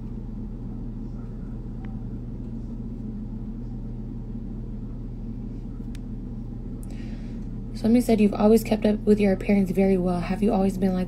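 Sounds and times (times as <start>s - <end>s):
low background hum: 0.0s - 11.0s
faint click: 5.8s - 6.1s.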